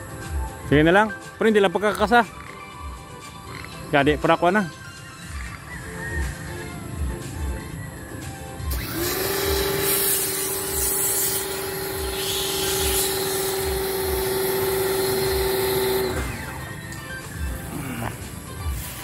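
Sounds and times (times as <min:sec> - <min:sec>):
background music with low beat: 0:00.0 - 0:19.0
steady hum rising in pitch: 0:08.7 - 0:18.2.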